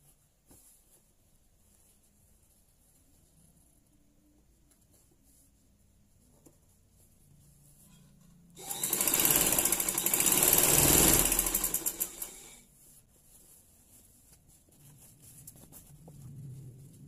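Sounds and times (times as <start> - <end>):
sewing machine clatter: 8.6 - 12.6.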